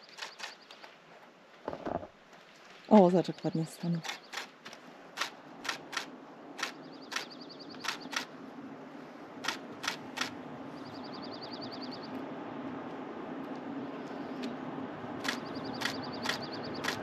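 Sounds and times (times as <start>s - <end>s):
faint high ticks: 0.0s - 0.9s, 4.0s - 8.3s, 15.2s - 17.0s
low steady hum: 0.0s - 17.0s
camera shutter clicking: 0.1s - 0.6s.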